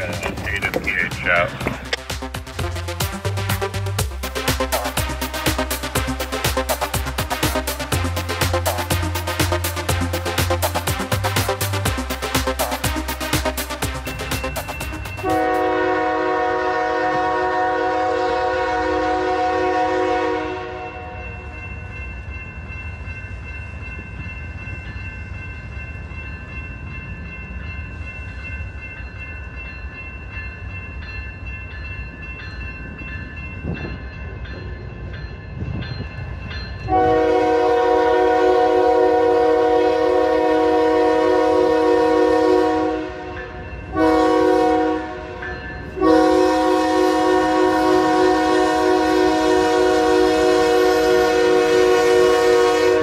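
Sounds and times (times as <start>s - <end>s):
crossing warning bell ringing: 0.0s - 53.0s
train rumbling: 0.0s - 53.0s
locomotive air horn: 15.2s - 21.2s, 36.9s - 45.4s, 46.0s - 53.0s.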